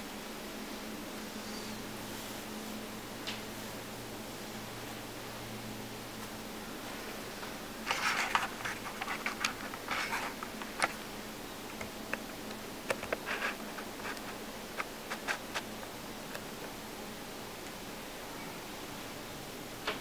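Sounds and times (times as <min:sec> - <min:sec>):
faint hum: 0:00.0 - 0:20.0
steady hiss: 0:00.0 - 0:20.0
handling rustles: 0:07.4 - 0:11.1, 0:11.7 - 0:15.9.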